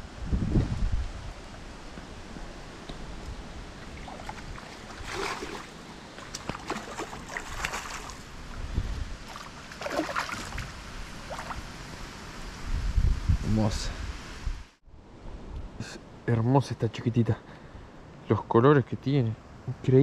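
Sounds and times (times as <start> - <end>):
fish splashing and thrashing in water: 3.9 - 8.5, 9.2 - 11.7.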